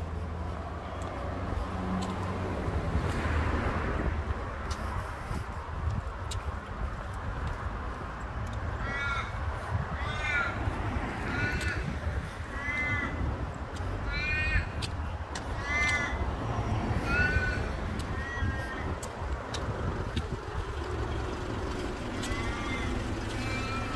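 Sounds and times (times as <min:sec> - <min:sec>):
road traffic rumble: 0:00.0 - 0:23.9
raven cawing: 0:08.7 - 0:23.9.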